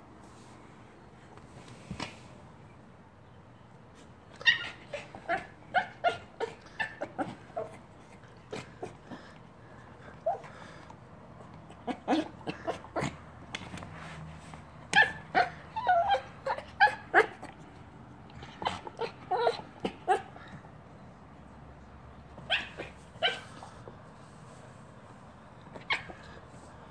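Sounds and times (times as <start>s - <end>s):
small dog whining yips: 4.3s - 7.0s, 14.9s - 17.3s, 22.4s - 23.6s, 25.7s - 26.2s.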